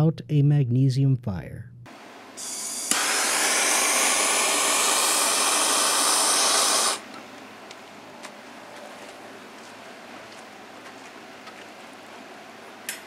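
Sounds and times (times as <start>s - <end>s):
gas torch hissing: 2.4s - 7.1s.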